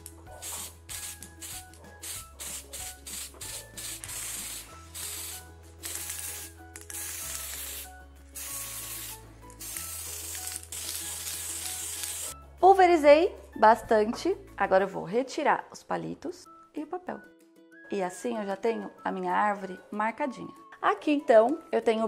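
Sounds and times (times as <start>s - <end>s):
aerosol can spraying: 0.0s - 12.4s
background music: 0.0s - 22.0s.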